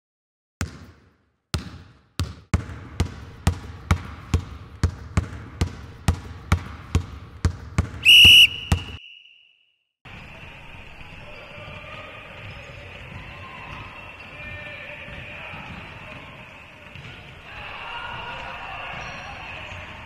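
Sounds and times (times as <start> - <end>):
basketball bouncing on hard floor: 0.6 - 9.0
gym ambience: 1.6 - 9.5
referee's whistle blast: 8.0 - 9.7.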